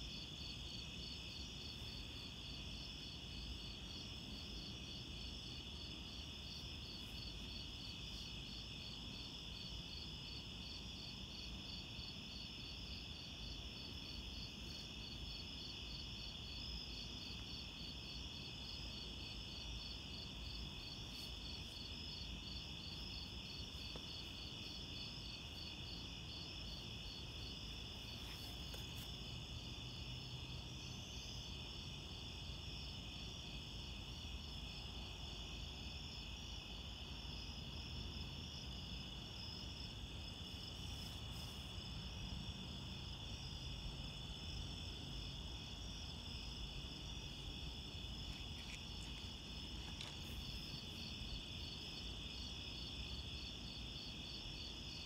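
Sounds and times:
pulsing cricket chirp: 0.0 - 55.0
insects trilling: 45.2 - 55.0.

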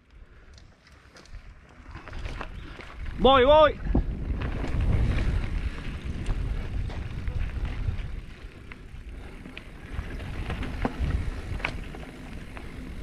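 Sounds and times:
bike clicks and rattles: 0.0 - 13.0
tyres on dirt: 0.4 - 13.0
wind on microphone: 2.0 - 13.0.

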